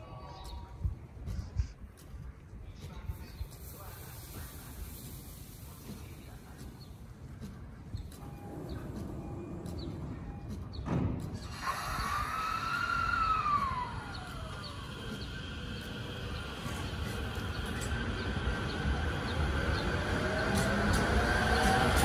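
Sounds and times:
low rumble of train: 0.0s - 22.0s
electric train motor whine: 11.4s - 22.0s.

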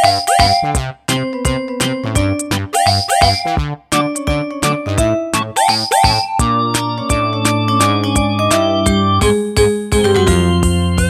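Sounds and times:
electronic music with drum beat: 0.0s - 0.9s, 2.3s - 4.3s, 5.4s - 9.0s.

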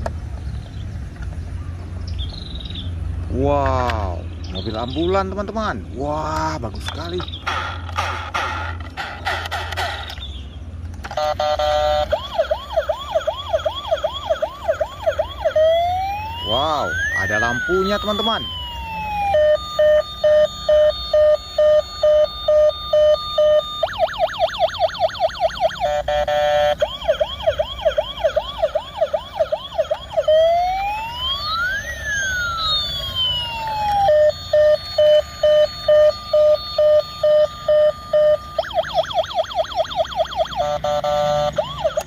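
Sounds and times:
toy siren sound effect: 11.0s - 42.0s.

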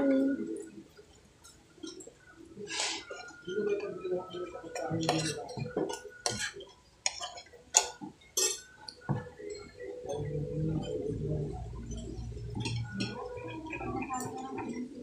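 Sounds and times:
cutlery clinking on ceramic plate: 4.7s - 9.7s.

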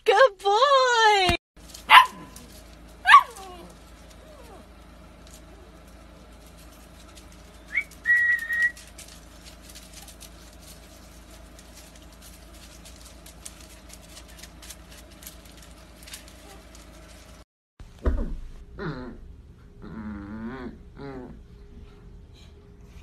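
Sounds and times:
person whistling: 7.7s - 8.8s.

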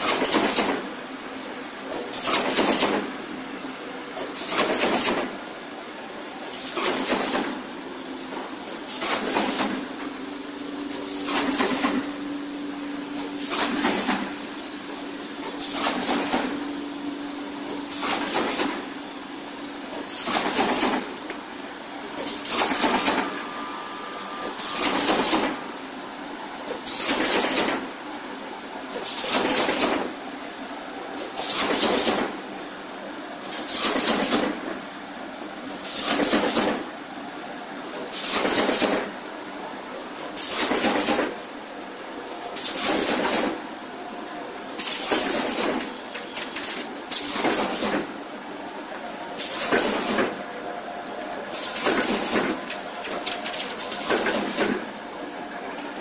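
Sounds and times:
machine hum: 7.5s - 26.9s
machine noise bursts: 8.6s - 27.9s.

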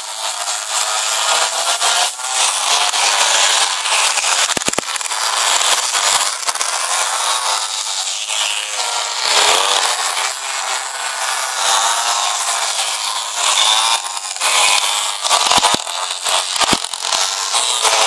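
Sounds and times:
small two-stroke engines buzzing: 0.0s - 18.0s
quick clicks: 4.3s - 5.2s, 14.6s - 17.2s.

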